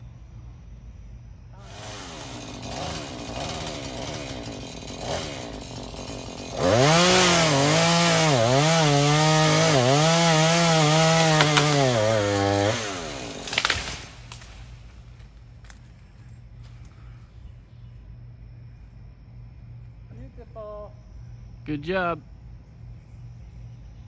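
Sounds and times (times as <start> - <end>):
chainsaw revving and cutting: 1.6 - 15.2
short crackle: 13.4 - 17.0.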